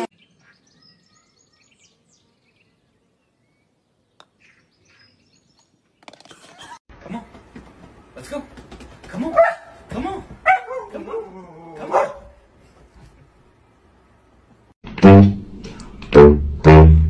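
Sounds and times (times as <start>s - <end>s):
faint bird chirps: 0.2s - 5.8s.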